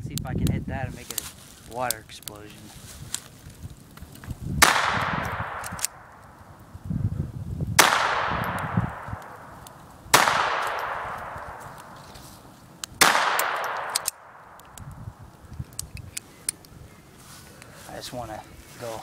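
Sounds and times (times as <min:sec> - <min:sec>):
pistol shots echoing: 0:04.6 - 0:06.1, 0:07.8 - 0:12.0, 0:13.0 - 0:14.6.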